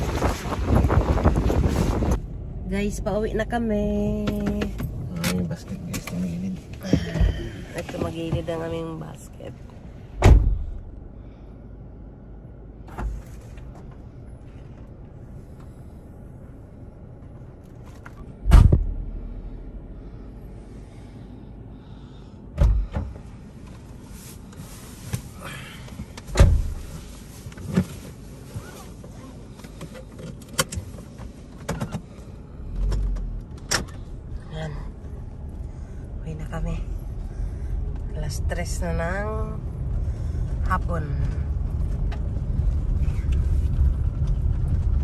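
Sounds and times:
low steady car rumble: 0.0 - 45.0
heavy thumps of car body: 10.2 - 10.8.

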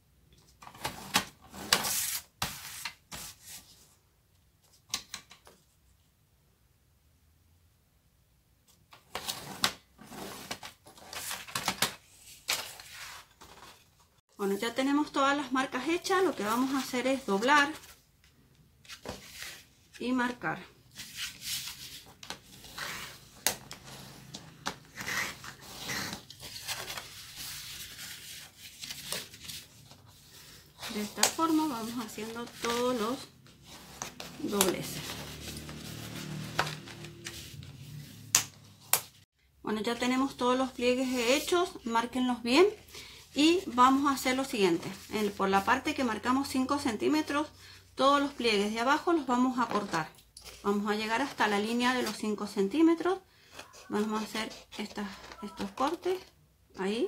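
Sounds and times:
paper rustling and rubbing: 0.8 - 3.9, 20.9 - 38.3.

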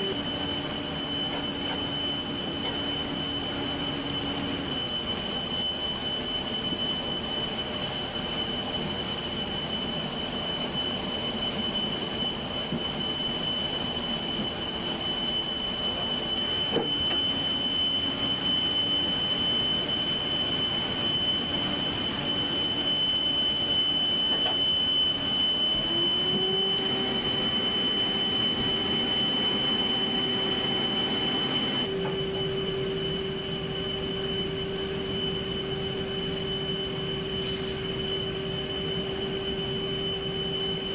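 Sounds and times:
high-pitched whine: 0.0 - 40.9.

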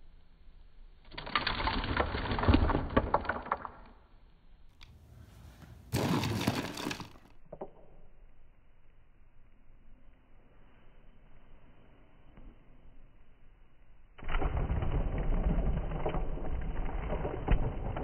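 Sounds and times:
plastic figures clattering: 1.2 - 4.0, 6.0 - 7.3
burst of noise: 14.2 - 18.0.

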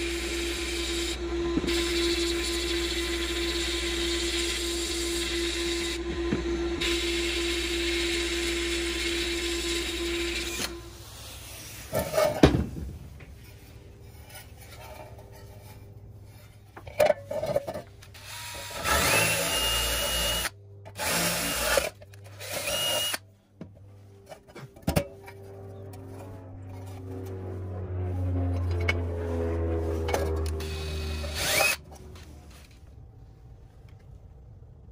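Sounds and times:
cordless drill boring metal: 0.0 - 12.2, 18.0 - 23.2, 30.5 - 32.0.

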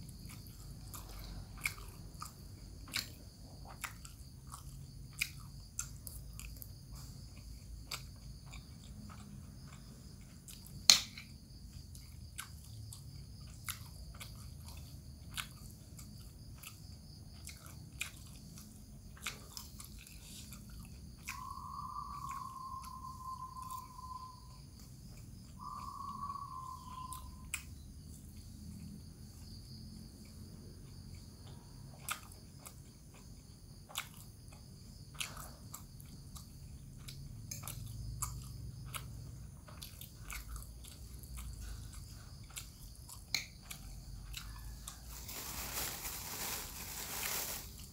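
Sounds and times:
person chewing: 0.1 - 21.4, 32.0 - 47.9.

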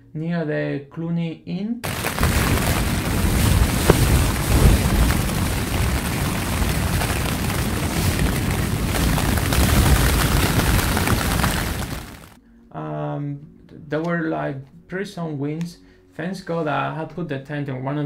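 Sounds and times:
tent fabric flapping in wind: 1.8 - 12.4
heavy wind buffeting rumble: 1.9 - 12.4.

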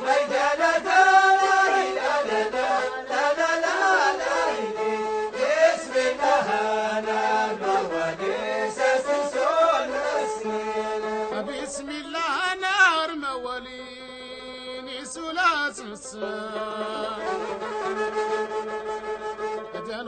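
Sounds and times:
steady held tones: 0.0 - 11.8
person singing: 0.0 - 18.6.

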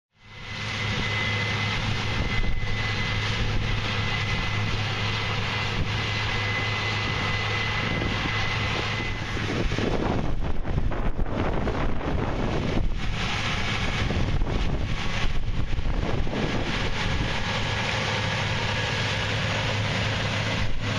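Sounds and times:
combine engine hum: 0.1 - 20.9
high-pitched whine: 0.2 - 20.9
wind buffeting microphone: 0.4 - 20.9.

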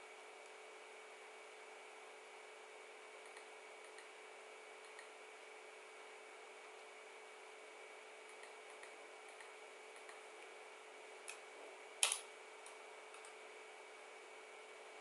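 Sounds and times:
computer mouse clicking: 3.2 - 4.1, 4.8 - 5.1, 8.3 - 10.2, 12.0 - 13.4.

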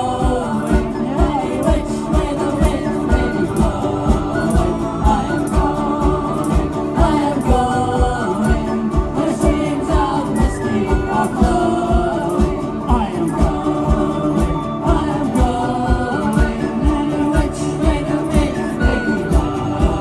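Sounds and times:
punk band playing: 0.0 - 20.0
voices singing together: 0.0 - 20.0.

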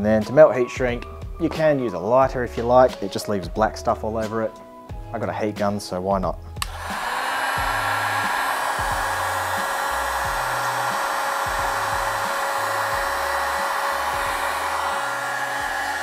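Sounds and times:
heat gun blowing air: 6.6 - 16.0.

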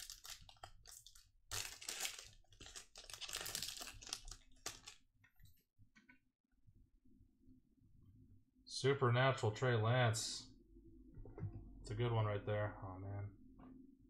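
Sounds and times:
foil wrapper crinkling and tearing: 0.0 - 5.0.

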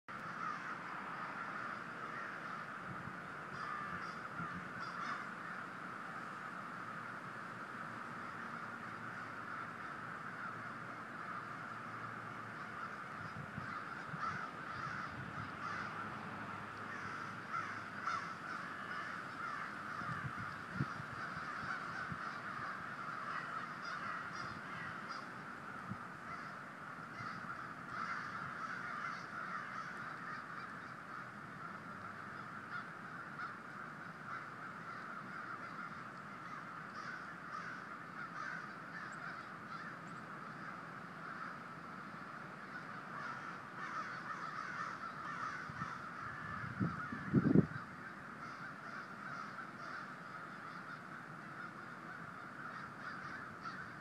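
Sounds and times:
crows cawing: 0.1 - 54.0.

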